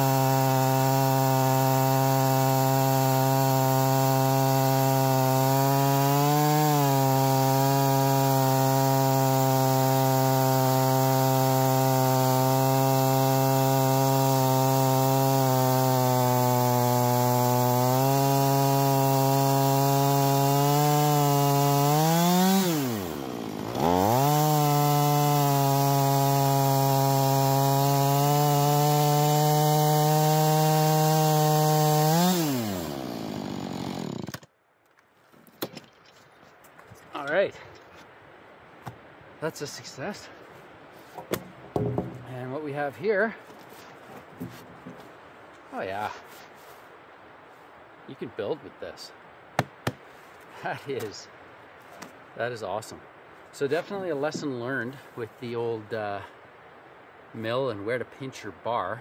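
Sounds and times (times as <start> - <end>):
chainsaw cutting at high revs: 0.0 - 34.5.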